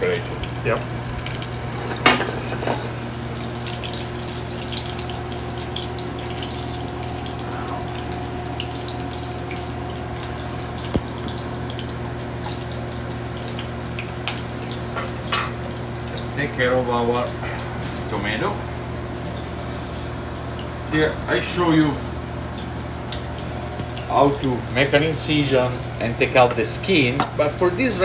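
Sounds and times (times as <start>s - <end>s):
garlic bubbling in oil: 0.0s - 17.1s
constant low hum: 0.0s - 28.0s.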